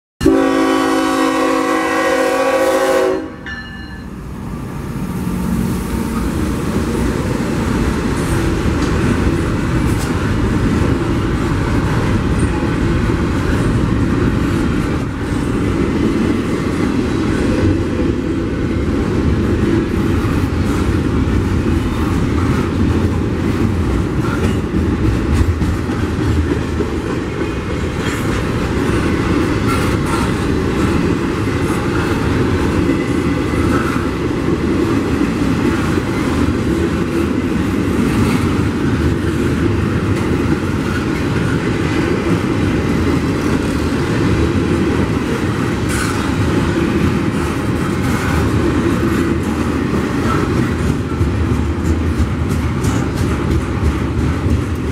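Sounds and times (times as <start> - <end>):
locomotive air horn: 0.2 - 3.5
train rumble and wheel clatter: 0.2 - 54.9.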